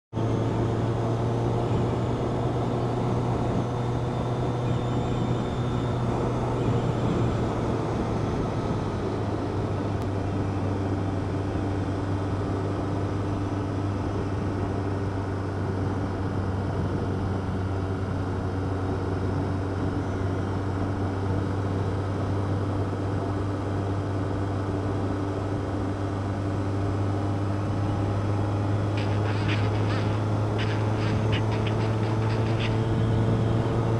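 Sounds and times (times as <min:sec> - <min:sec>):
motorcycle engine cruising: 0:00.1 - 0:33.9
rushing noise: 0:28.2 - 0:33.9.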